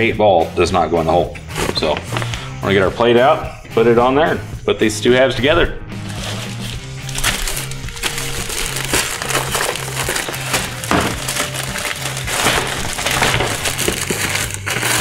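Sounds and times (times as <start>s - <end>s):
background music with bass beat: 0.0s - 15.0s
plastic bag crinkling: 6.0s - 15.0s.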